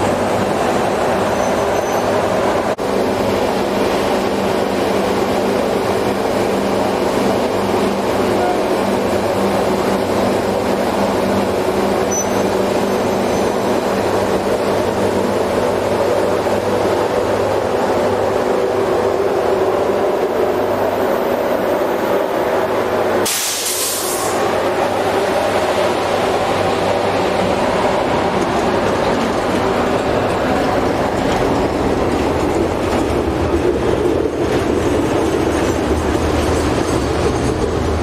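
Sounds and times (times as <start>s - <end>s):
electric locomotive hum: 0.0s - 23.3s, 24.2s - 38.0s.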